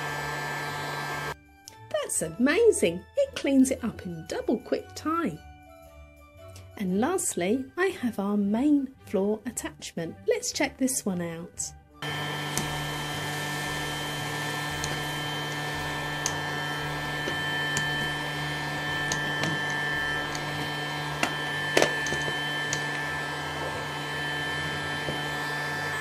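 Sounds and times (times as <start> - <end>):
toy vacuum cleaner whirring: 0.0 - 1.4, 12.0 - 26.0.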